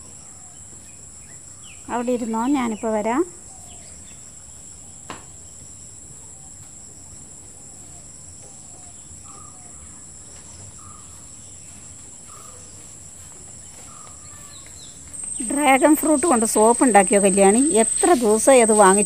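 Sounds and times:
crickets trilling: 0.0s - 19.0s.

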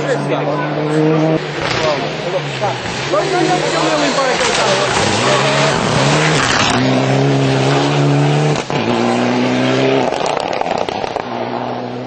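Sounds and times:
high-revving car engine: 0.0s - 12.0s
rally car passing at speed: 0.0s - 12.0s.

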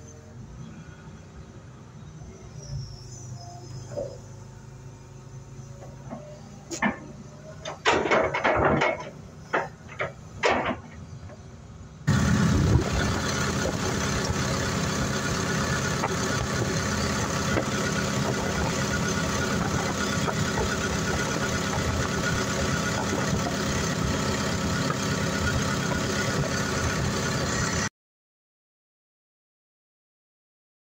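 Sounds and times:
diesel engine idling: 4.1s - 27.9s
short knocks and rattles: 5.9s - 11.4s.

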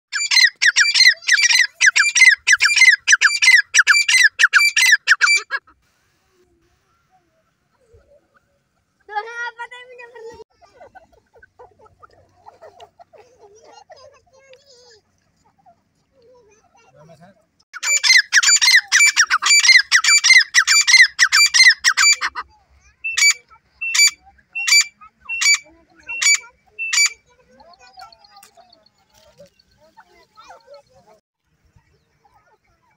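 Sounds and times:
bird calling loudly: 0.1s - 5.8s, 17.8s - 30.9s.

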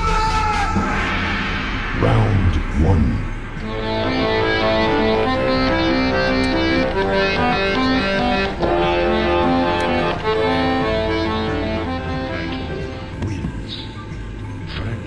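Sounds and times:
instrumental background music: 0.0s - 15.0s.

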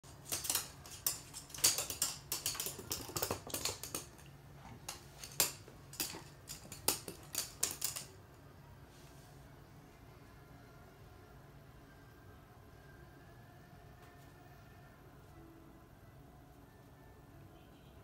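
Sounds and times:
dog claws clicking on floor: 0.0s - 8.2s.

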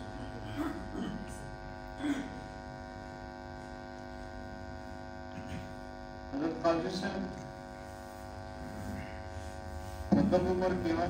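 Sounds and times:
electrical mains hum: 0.0s - 11.0s
man speaking: 6.3s - 7.6s, 10.1s - 11.0s.

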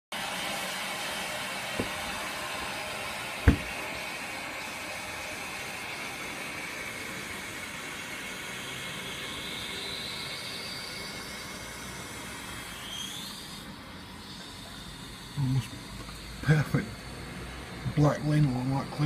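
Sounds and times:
town background rumble with hiss: 14.3s - 19.0s.

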